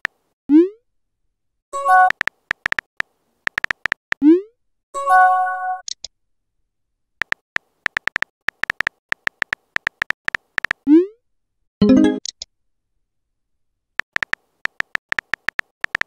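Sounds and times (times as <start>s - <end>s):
phone keyboard clicks: 1.9s - 4.0s, 7.2s - 10.8s, 14.0s - 16.0s.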